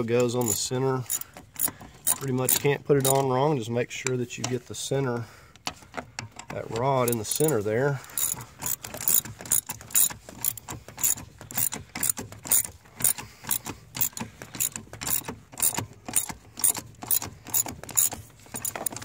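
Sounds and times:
ratchet clicking: 0:00.2 - 0:03.3, 0:07.0 - 0:19.0.

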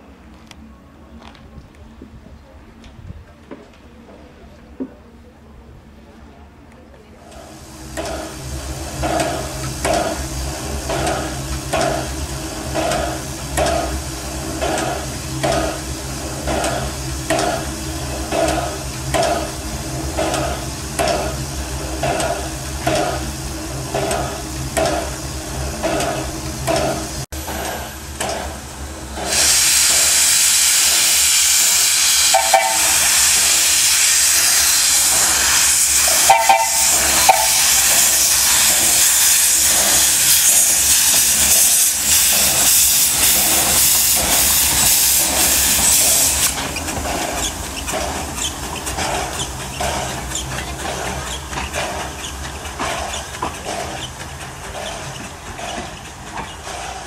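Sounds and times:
steam hissing: 0:07.2 - 0:57.0
steam locomotive chuffing: 0:07.2 - 0:57.0.

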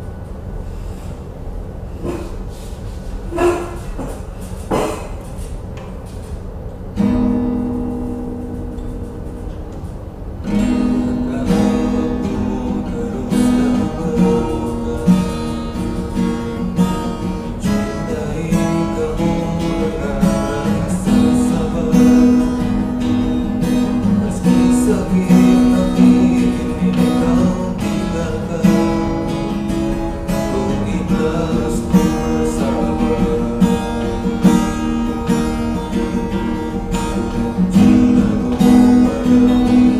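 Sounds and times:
acoustic guitar strummed: 0:03.3 - 0:39.9
man singing: 0:10.5 - 0:35.4, 0:36.9 - 0:39.9.

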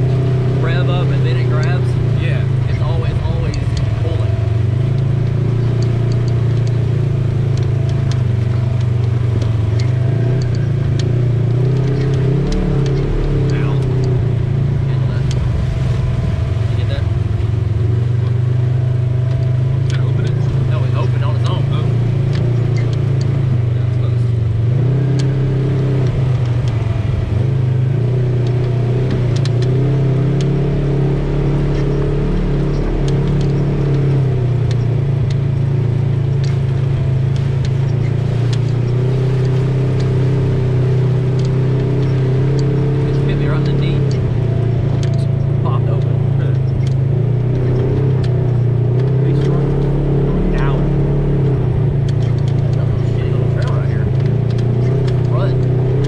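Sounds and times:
vehicle engine running steadily: 0:00.0 - 0:56.0
light clicks and rattles: 0:02.6 - 0:15.5, 0:31.7 - 0:50.9, 0:51.7 - 0:56.0.

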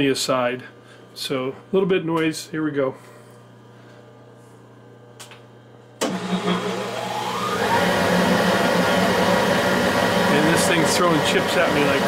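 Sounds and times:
faint hum: 0:00.0 - 0:06.6
metal lathe motor whining: 0:06.0 - 0:12.0.

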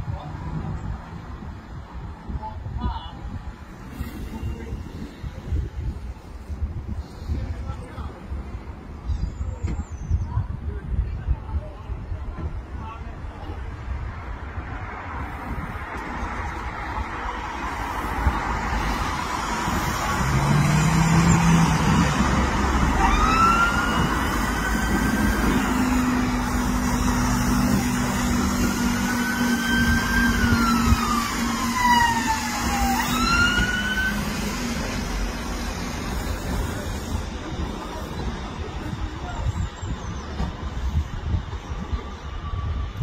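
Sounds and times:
road traffic: 0:00.0 - 0:43.0
passing car engines: 0:14.4 - 0:38.6
emergency vehicle siren wailing: 0:19.0 - 0:34.4.

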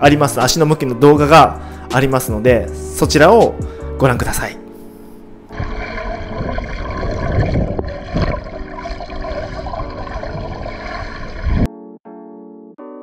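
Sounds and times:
water rushing and splashing underwater: 0:05.5 - 0:11.7.

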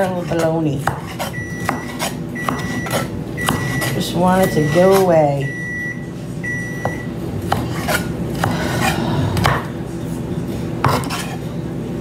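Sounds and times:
knife slicing peppers: 0:00.0 - 0:05.2, 0:07.3 - 0:09.8, 0:10.8 - 0:11.4.

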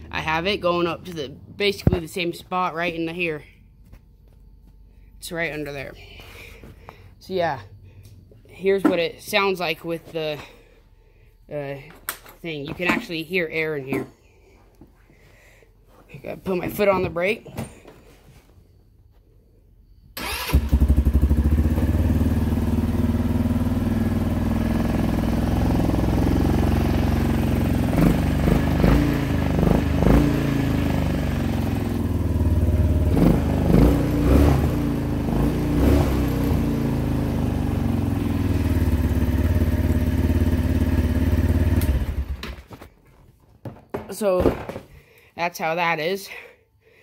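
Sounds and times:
quad bike engine idling: 0:00.0 - 0:01.8, 0:20.4 - 0:42.4.

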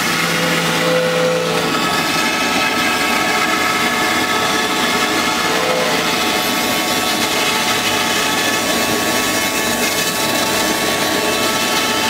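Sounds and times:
router spindle whine: 0:00.0 - 0:12.0.

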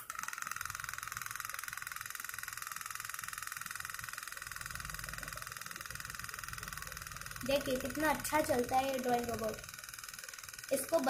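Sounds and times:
vibrating motor buzzing rattle: 0:00.0 - 0:11.0.

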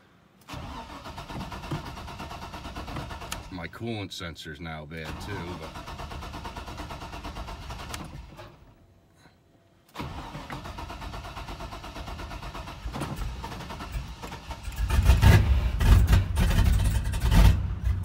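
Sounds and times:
engine running roughly: 0:14.7 - 0:18.0.

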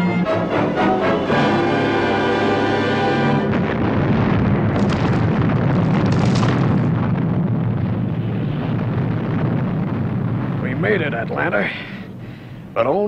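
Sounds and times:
orchestral music: 0:00.0 - 0:03.7
rumbling explosion with crackling debris: 0:03.4 - 0:13.0.

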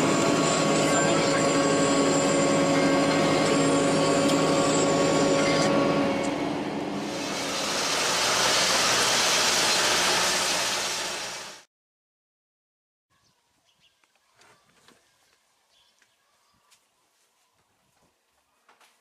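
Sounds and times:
vehicle engine running: 0:00.0 - 0:11.6
broad rushing noise: 0:07.0 - 0:11.6.

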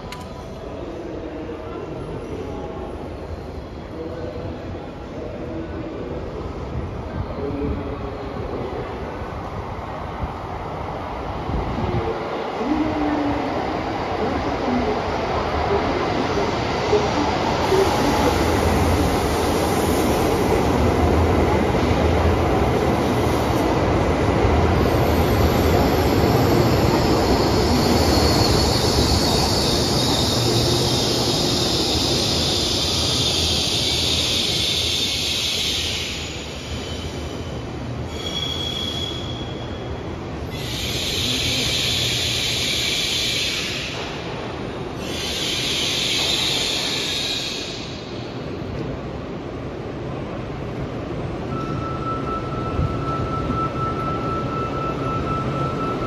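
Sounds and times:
train braking to a stop: 0:12.6 - 0:48.8, 0:51.3 - 0:56.0.

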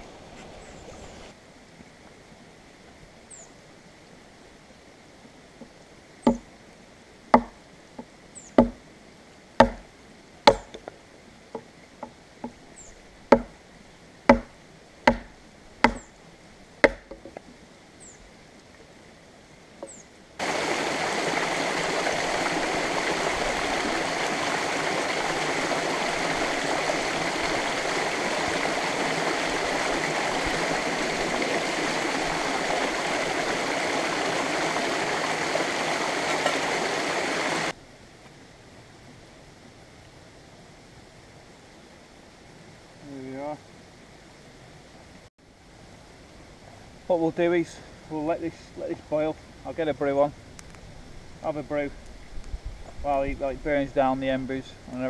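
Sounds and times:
water splashing over rocks: 0:20.4 - 0:37.8.

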